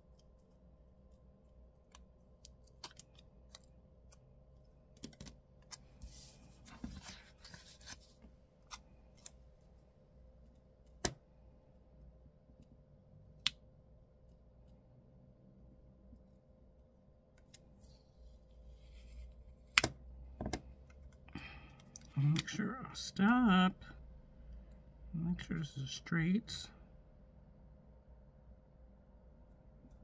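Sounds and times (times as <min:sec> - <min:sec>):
paper rustling: 0:05.1 - 0:09.3.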